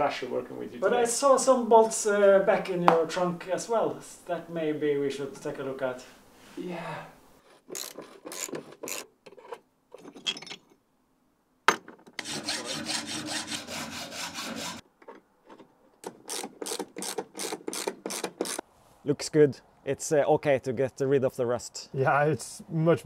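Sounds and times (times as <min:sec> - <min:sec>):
hacksaw cutting steel rod: 0:07.6 - 0:09.1, 0:12.2 - 0:14.8, 0:16.2 - 0:18.6.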